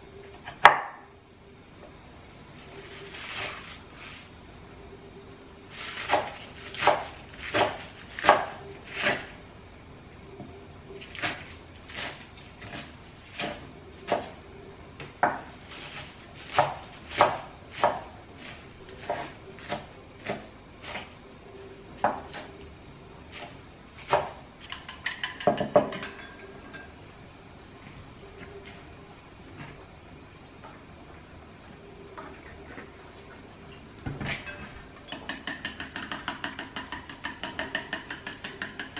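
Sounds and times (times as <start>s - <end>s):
knife chopping on wooden board: 6.1s - 9.3s, 16.5s - 18.1s.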